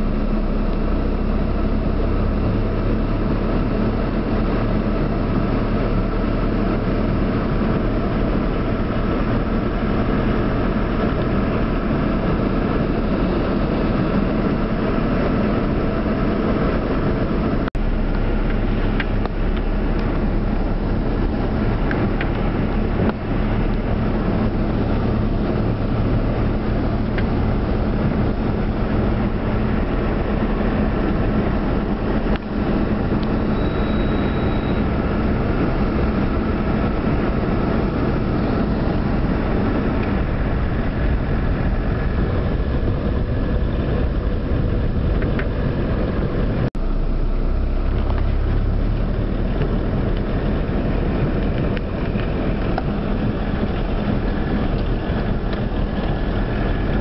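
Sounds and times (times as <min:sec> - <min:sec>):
car engine running: 0:00.0 - 0:57.0.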